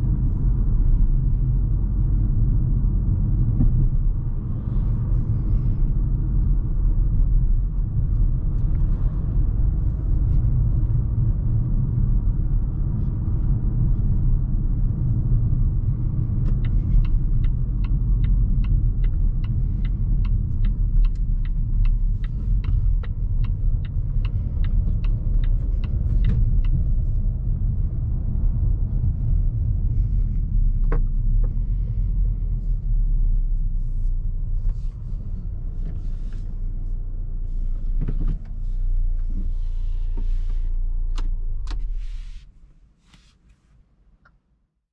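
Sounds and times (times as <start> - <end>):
road and engine rumble in car cabin: 0.0 - 44.9
turn signal ticking: 13.4 - 32.0.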